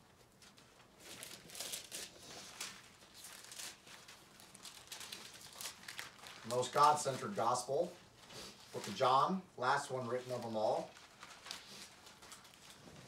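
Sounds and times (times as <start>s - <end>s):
thin pages being turned: 0.4s - 7.8s, 10.1s - 13.0s.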